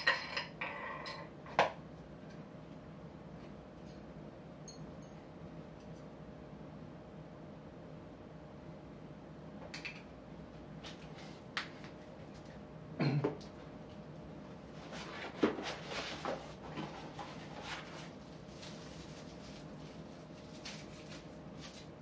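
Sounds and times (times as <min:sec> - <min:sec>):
cardboard packaging rustling: 0:14.8 - 0:21.4.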